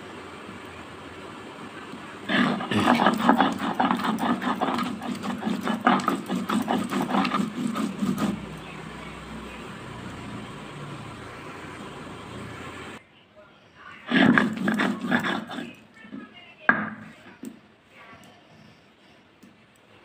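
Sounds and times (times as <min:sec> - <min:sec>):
stone roller grinding on stone: 0:02.2 - 0:08.7, 0:14.1 - 0:16.2.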